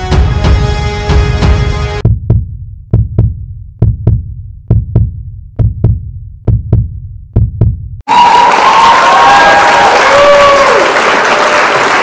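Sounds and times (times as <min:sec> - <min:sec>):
heartbeat thumps: 0:02.0 - 0:08.0.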